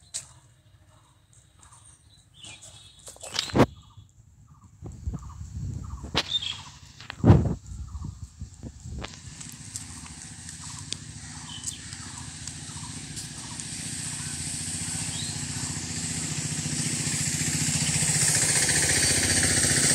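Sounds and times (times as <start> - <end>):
small vehicle engine running: 7.9 - 19.9.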